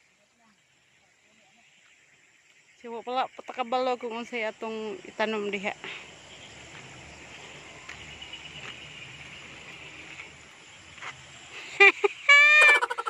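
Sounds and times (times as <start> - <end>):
insects droning: 0.0 - 13.0
woman laughing: 11.5 - 13.0.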